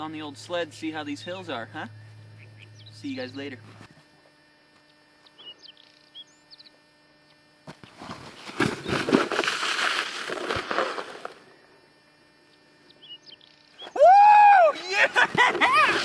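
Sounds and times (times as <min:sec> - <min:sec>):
sled scraping down snow: 0:08.0 - 0:11.4, 0:15.4 - 0:16.0.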